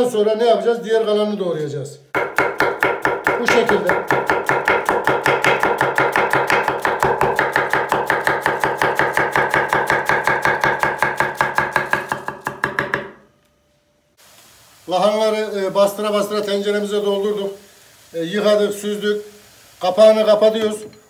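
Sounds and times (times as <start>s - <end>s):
knife chopping cabbage on board: 2.2s - 13.1s.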